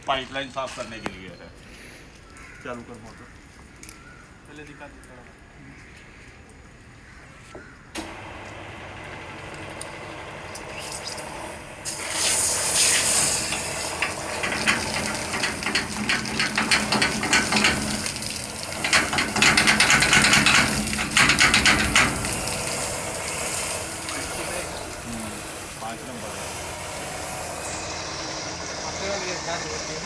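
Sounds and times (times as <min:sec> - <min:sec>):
water gushing from a pipe: 0:10.4 - 0:30.0
water splashing onto wet ground: 0:11.8 - 0:26.2.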